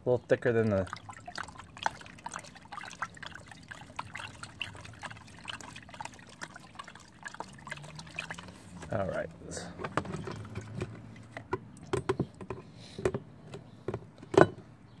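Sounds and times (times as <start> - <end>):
liquid sloshing in plastic tub: 0.4 - 12.8
small splashes and clicks: 0.6 - 9.2, 9.9 - 12.6.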